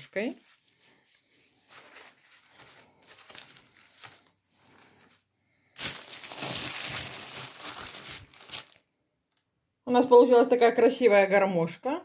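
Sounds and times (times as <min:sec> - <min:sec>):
pastry and baking paper crinkling: 0:00.0 - 0:08.9.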